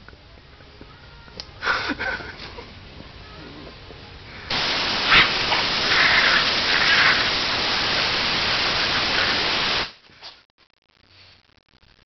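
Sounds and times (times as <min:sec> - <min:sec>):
air blow gun hissing: 0:04.5 - 0:10.0.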